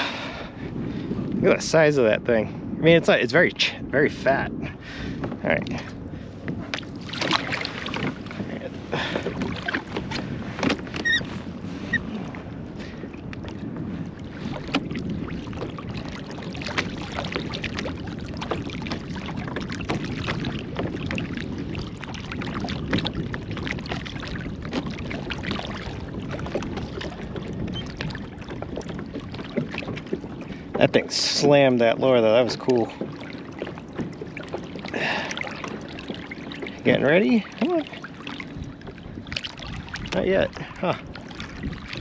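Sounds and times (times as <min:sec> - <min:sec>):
water lapping against a kayak hull: 0:00.0 - 0:42.0.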